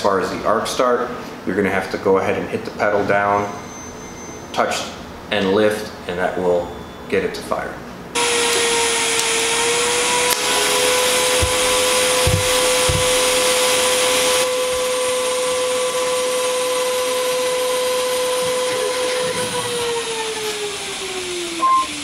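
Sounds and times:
soft low thuds: 0:11.4 - 0:13.4.

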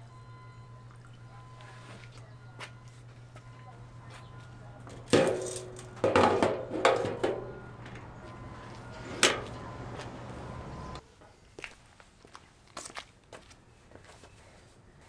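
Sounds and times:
fuel cap clacks and clinks: 0:05.1 - 0:07.4.

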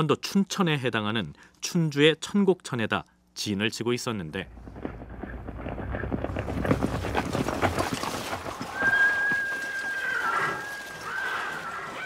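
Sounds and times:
horses galloping: 0:04.3 - 0:12.0.

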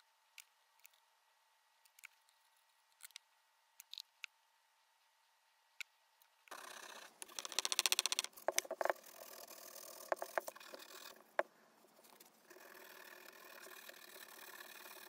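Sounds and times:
sharp clicks and knocks: 0:07.2 - 0:09.1, 0:10.0 - 0:11.5
sandpaper rasping on wood: 0:12.5 - 0:15.0.

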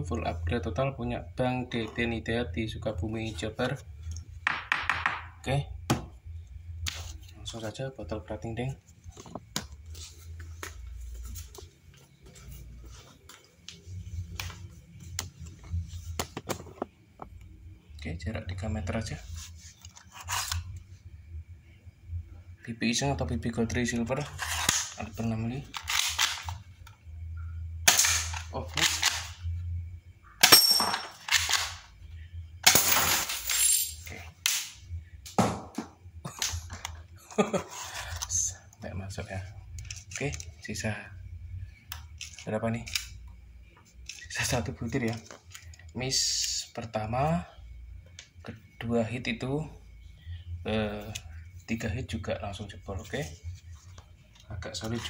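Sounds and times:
airsoft pistol firing: 0:27.9 - 0:28.3
glass bottle clattering over: 0:30.5 - 0:31.2.

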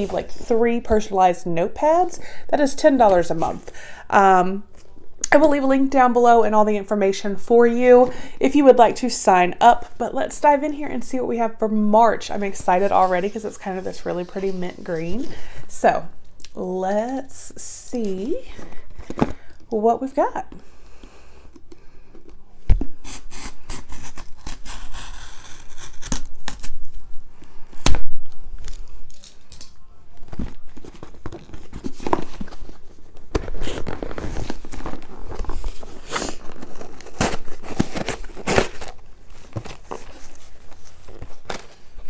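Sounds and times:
tape being cut and torn: 0:23.1 - 0:26.8
paper rustling: 0:28.6 - 0:42.0.

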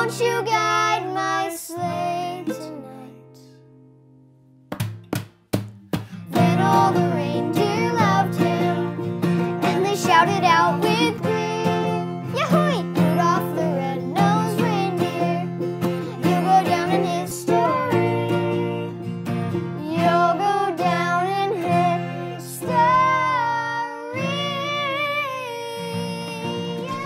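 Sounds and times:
man and girl singing: 0:00.0 - 0:03.6, 0:06.2 - 0:19.0, 0:19.8 - 0:27.0
ukulele: 0:00.0 - 0:03.6, 0:05.6 - 0:27.0
strummed acoustic guitar: 0:00.0 - 0:27.0.

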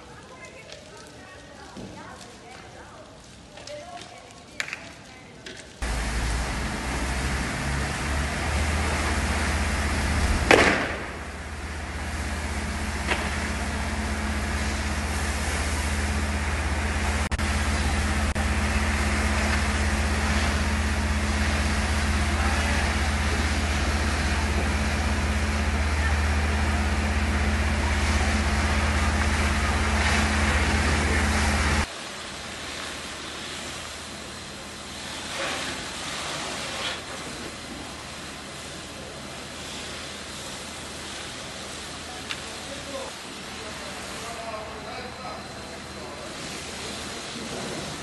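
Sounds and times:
rushing noise of burning cars: 0:00.0 - 0:48.0
sudden loud burst: 0:05.8 - 0:11.7
steady higher hum: 0:05.8 - 0:32.7
fire engine droning: 0:05.8 - 0:48.0.

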